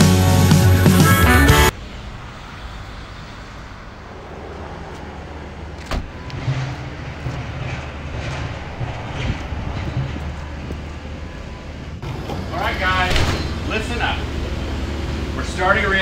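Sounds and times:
low rumble of vehicles: 1.7s - 16.0s
van door shutting: 5.7s - 7.8s, 12.0s - 14.4s.

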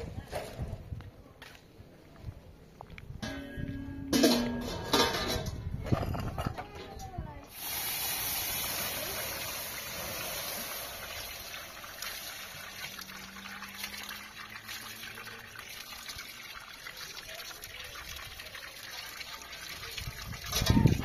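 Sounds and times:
hiss of steam: 7.5s - 11.5s
water splashing on hot griddle: 7.5s - 21.0s.

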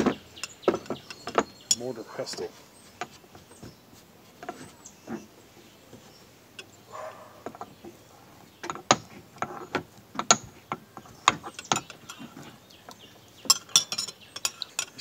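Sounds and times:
metal utensil tapping mortar: 12.9s - 15.0s.

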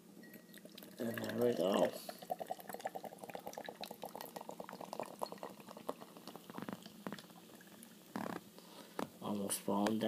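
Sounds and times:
beer pouring into glass: 0.2s - 8.0s
beer foam fizzing: 0.6s - 8.2s.

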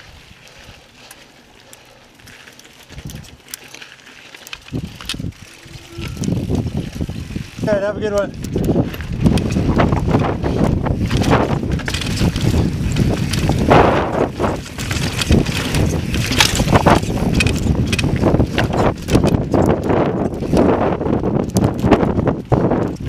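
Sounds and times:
bike tyres grinding on rock: 0.0s - 23.0s
bike clattering and knocking: 2.2s - 23.0s
wind on microphone: 4.6s - 23.0s.

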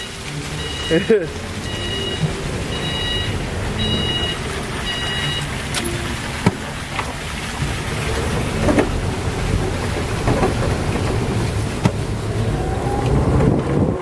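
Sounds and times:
vehicle reversing beeper: 0.0s - 5.6s
vehicle running noise: 0.0s - 14.0s.

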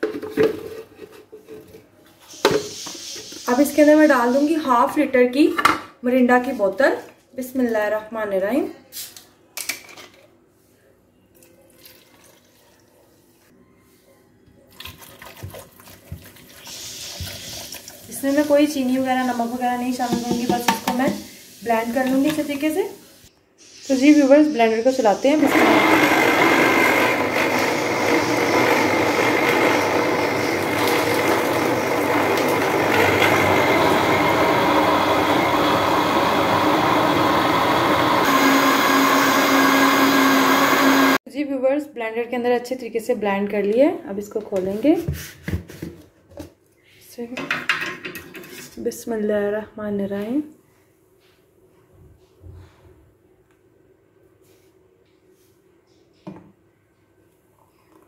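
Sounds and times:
blender motor whirring: 25.3s - 41.2s.

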